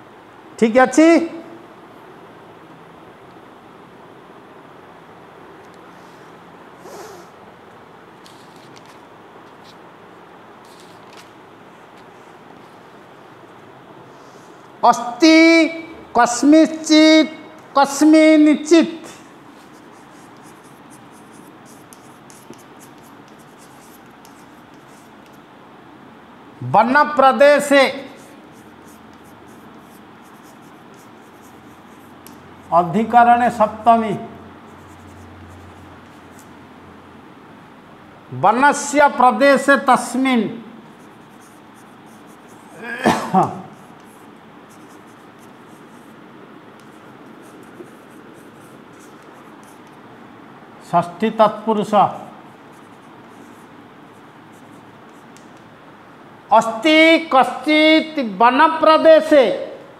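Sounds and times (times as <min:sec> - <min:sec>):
steady background hiss: 0:00.0 - 0:59.9
chalk scratching on chalkboard: 0:08.3 - 0:08.7, 0:10.7 - 0:11.0, 0:19.5 - 0:25.4, 0:27.6 - 0:33.2, 0:34.6 - 0:36.5, 0:40.9 - 0:42.8, 0:43.7 - 0:46.2, 0:46.8 - 0:50.0, 0:52.5 - 0:55.6
chalk tap: 0:19.6 - 0:25.4, 0:28.2 - 0:32.5, 0:43.8 - 0:46.1, 0:46.8 - 0:50.0, 0:54.6 - 0:55.7.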